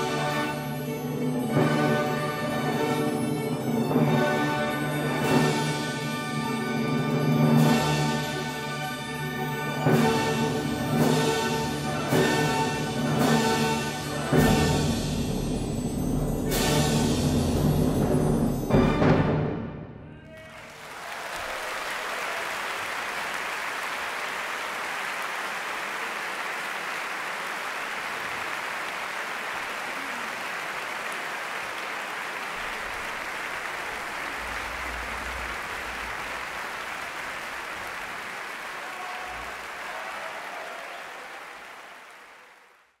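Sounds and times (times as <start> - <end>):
audience applauding: 20.2 - 43.0.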